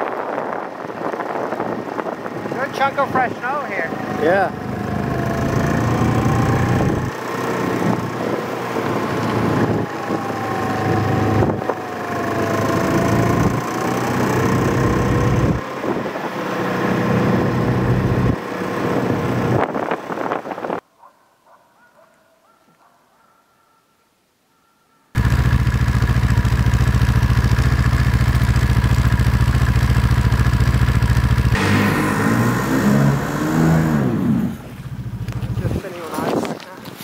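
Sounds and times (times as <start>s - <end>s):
wind on microphone: 0.0s - 12.0s, 17.9s - 20.8s
snowmobile engine running: 2.4s - 19.7s, 25.2s - 36.5s.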